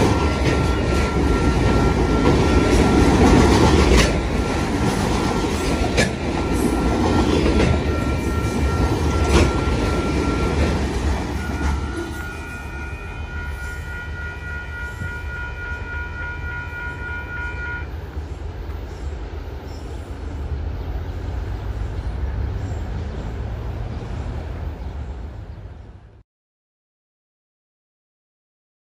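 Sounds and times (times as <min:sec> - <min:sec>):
steady high-pitched tone: 0:00.0 - 0:18.0
freight train rumbling past: 0:00.0 - 0:26.2.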